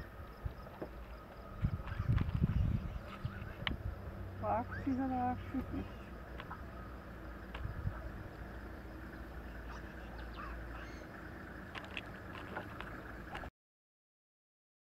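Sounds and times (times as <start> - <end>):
steady low rumble: 0.0 - 13.5
faint high chirps and clicks: 6.3 - 6.8.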